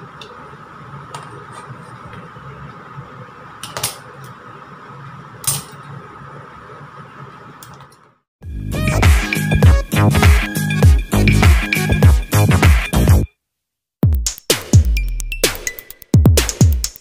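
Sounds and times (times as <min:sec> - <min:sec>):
steady background hum: 0:00.0 - 0:08.2.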